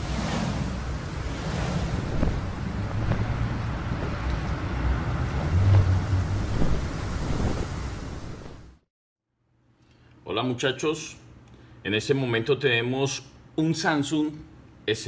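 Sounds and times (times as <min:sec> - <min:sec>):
wind rushing with rumbling gusts: 0:00.0 - 0:08.8.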